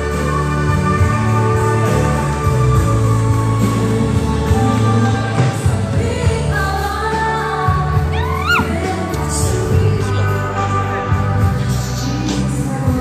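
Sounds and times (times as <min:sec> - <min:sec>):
live pop band music: 0:00.0 - 0:13.0
person singing: 0:03.6 - 0:13.0.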